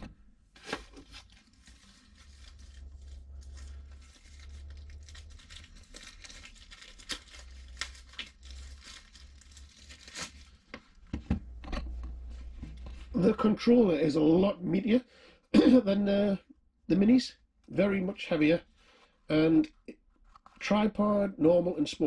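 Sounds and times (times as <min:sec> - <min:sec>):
packaging wrapping crackling: 0:00.6 - 0:10.7.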